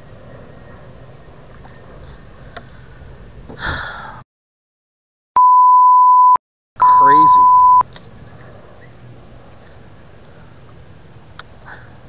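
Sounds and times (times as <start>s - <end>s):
wind: 0.0s - 4.2s, 6.8s - 12.0s
high electronic bleep: 5.4s - 7.8s.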